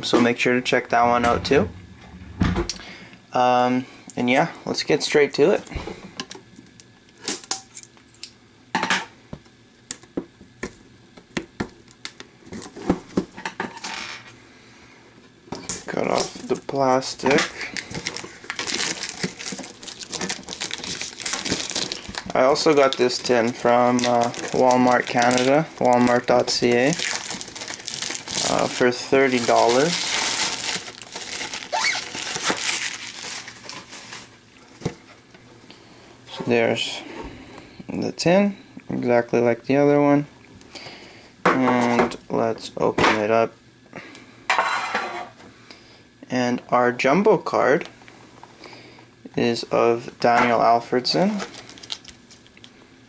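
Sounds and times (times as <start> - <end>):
plastic shrink-wrap crinkling: 16.0 - 34.9, 51.2 - 52.8.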